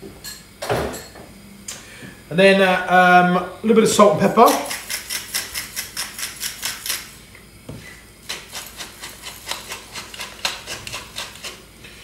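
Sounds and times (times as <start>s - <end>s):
pepper mill grinding clicks: 4.6s - 7.0s.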